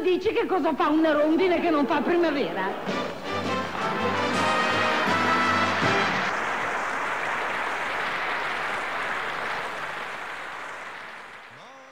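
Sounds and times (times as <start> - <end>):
audience applauding: 1.5 - 11.9
music: 2.7 - 6.3.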